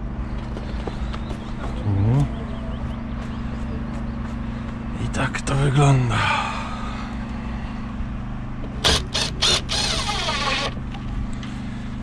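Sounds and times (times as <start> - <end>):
engine humming: 0.0 - 12.0
sharp noisy bursts: 8.8 - 10.8.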